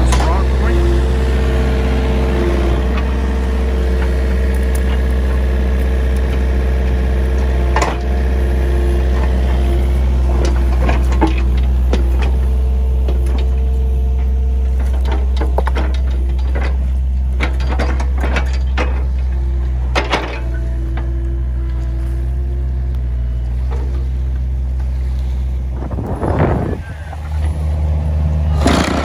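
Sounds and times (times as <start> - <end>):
diesel engine running: 0.0 - 29.0
rocks clunking in bucket: 10.4 - 19.3.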